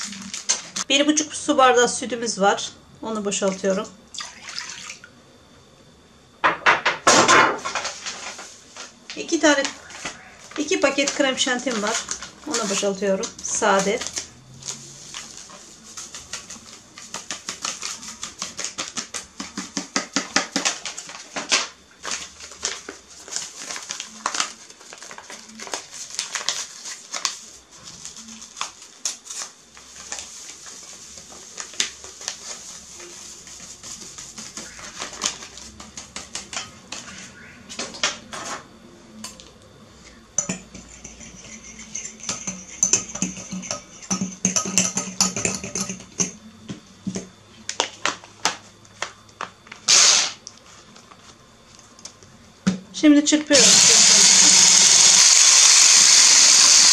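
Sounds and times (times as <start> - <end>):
whisk clinking against glass bowl: 40.4 - 46.4.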